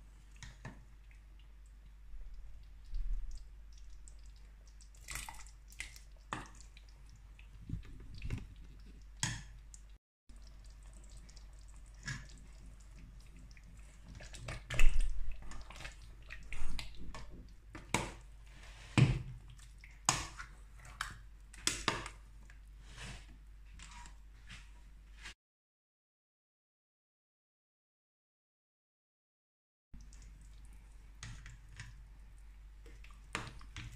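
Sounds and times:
spoon stirring thick stew: 0:10.4 - 0:18.3.

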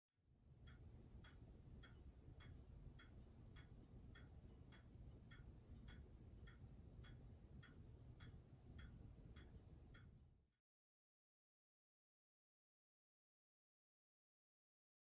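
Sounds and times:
pendulum clock ticking: 0:00.4 - 0:10.4.

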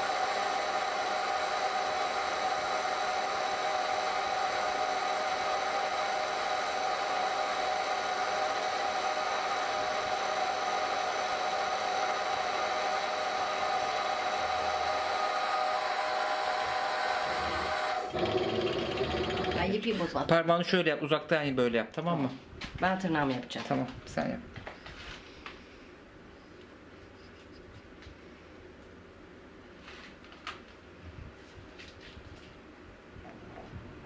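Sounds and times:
milling machine whirring and whining: 0:00.0 - 0:19.8.

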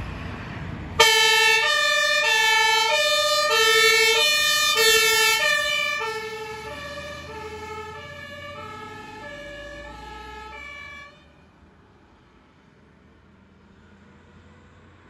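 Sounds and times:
two-tone fire engine siren: 0:01.0 - 0:11.3.

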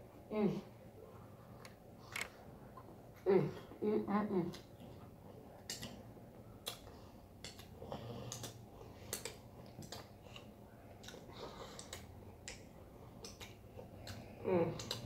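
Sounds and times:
mouth smacks licking fingers: 0:06.6 - 0:14.2.

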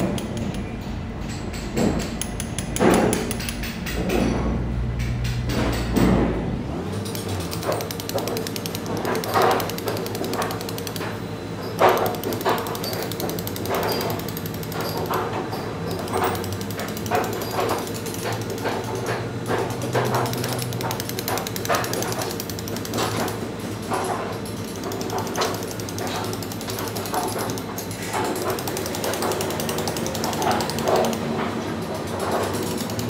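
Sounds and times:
chisel tapping into stone: 0:01.3 - 0:04.1, 0:28.2 - 0:31.3.

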